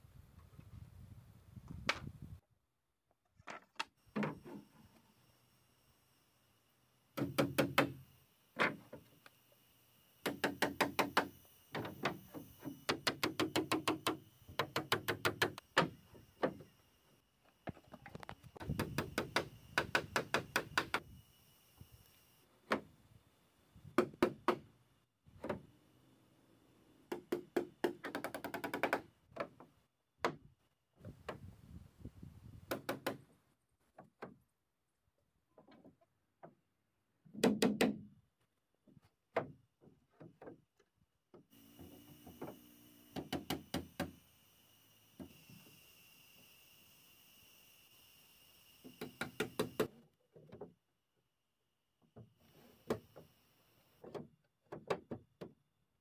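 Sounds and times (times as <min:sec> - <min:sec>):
hammer driving nails into wood: 0:07.2 - 0:08.0, 0:10.2 - 0:16.6, 0:18.6 - 0:21.0, 0:32.7 - 0:33.2, 0:37.3 - 0:38.1, 0:42.4 - 0:44.2, 0:48.8 - 0:50.0.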